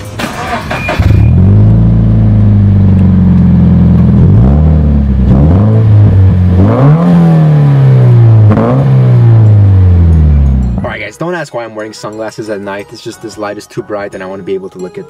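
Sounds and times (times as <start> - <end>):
car engine idling and revving: 0.0 - 11.1.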